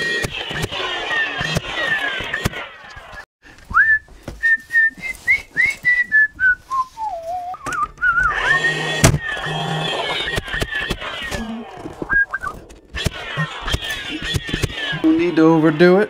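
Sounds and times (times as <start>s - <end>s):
man whistling a tune: 3.7s - 8.4s, 12.1s - 12.5s.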